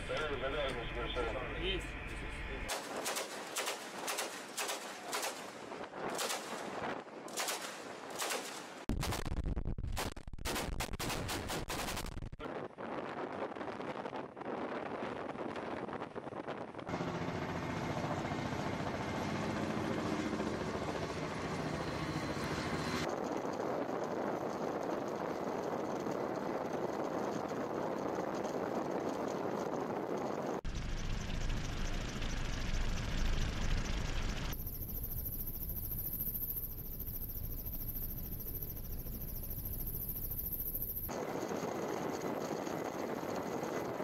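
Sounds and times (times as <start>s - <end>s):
turbine hum: 0.0s - 2.7s, 16.9s - 44.0s
helicopter rotors beating: 0.0s - 7.4s, 16.8s - 44.0s.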